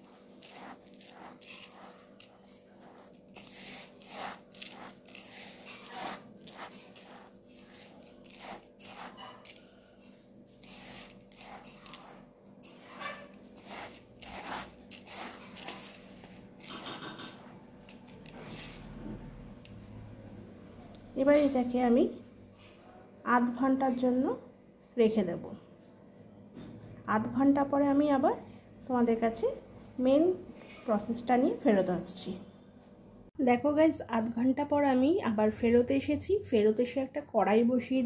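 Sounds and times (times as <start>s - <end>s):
hand mixing rice grains in bowl: 0.0s - 19.0s.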